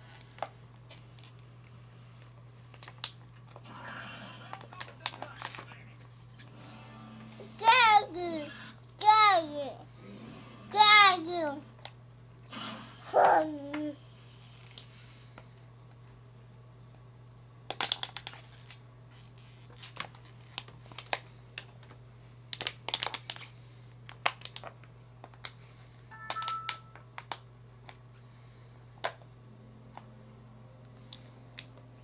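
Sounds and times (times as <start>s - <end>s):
plastic water bottle crinkling: 22.5s - 23.5s.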